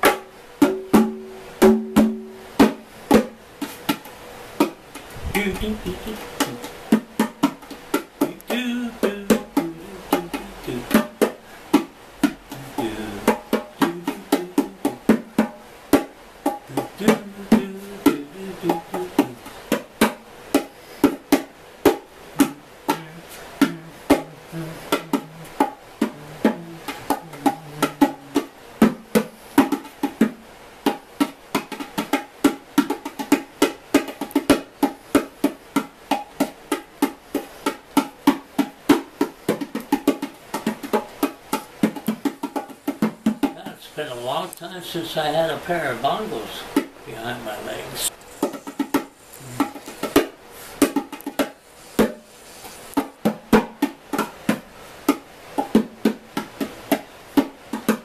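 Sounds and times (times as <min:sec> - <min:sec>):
bongos played with hands: 0:00.0 - 0:44.4, 0:45.9 - 0:58.0.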